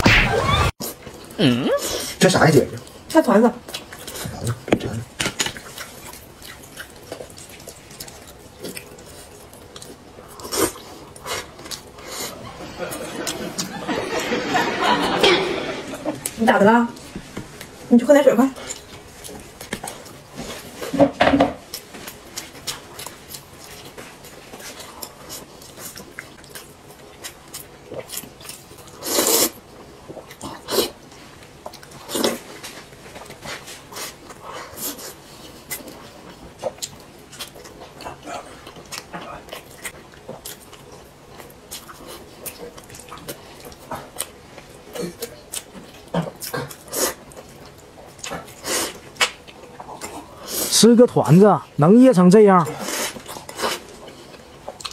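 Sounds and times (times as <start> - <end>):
chewing and mouth noises: 2.8 - 13.8, 18.5 - 20.9, 21.6 - 50.8, 52.6 - 54.9
wet clicks and lip smacks: 49.2 - 49.9.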